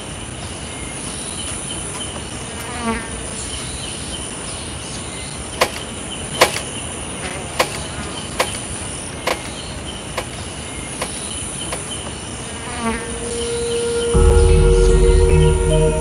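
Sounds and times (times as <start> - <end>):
insects chirping: 0.0 - 14.1
sharp clicks: 5.6 - 12.1.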